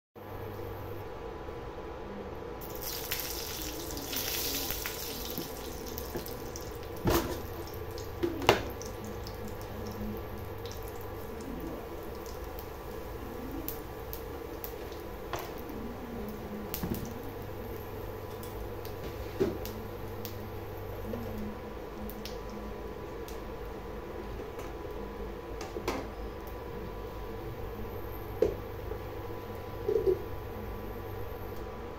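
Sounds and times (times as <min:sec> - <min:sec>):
hot oil sizzling and crackling: 0:02.6 - 0:21.0.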